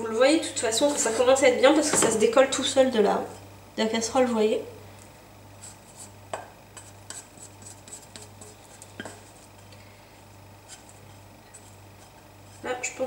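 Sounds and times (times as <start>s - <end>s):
faint steady hum: 0.0s - 13.0s
spatula scraping a pan: 5.6s - 9.7s, 10.6s - 13.0s.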